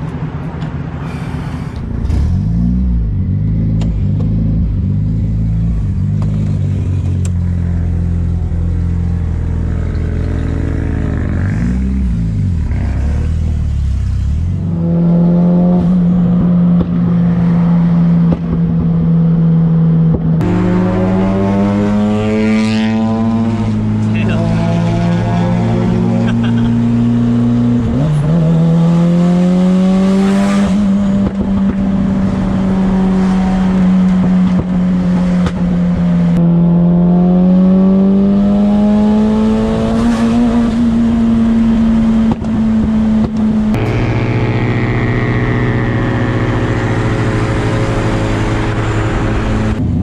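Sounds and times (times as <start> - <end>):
car engine from inside cabin: 14.1 - 50.0.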